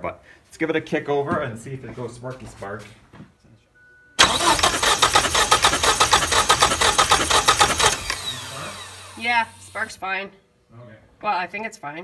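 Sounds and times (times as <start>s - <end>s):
engine cranking on starter: 4.2s - 9.9s.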